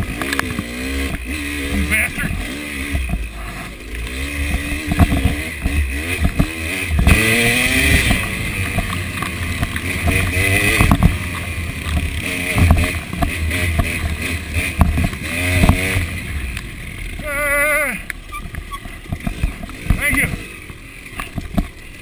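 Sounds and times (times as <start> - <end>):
dirt bike engine revving: 0.0 - 22.0
bike knocking and clattering: 4.0 - 16.6, 18.3 - 22.0.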